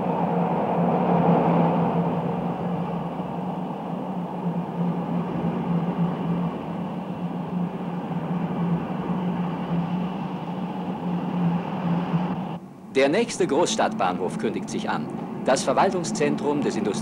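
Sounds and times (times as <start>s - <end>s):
train wheels on rails: 0.0s - 12.6s
low hum: 0.0s - 17.0s.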